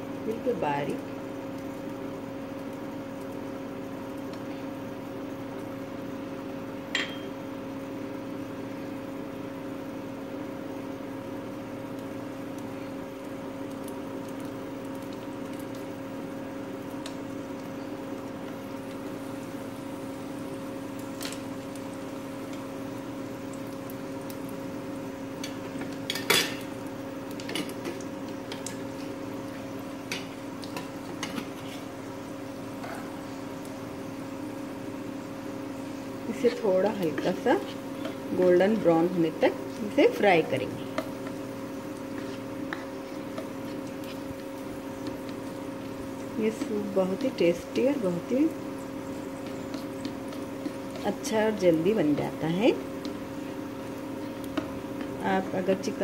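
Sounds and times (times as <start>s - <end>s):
steady low hum: 0.0s - 56.0s
slices dropping into oil: 25.4s - 28.8s.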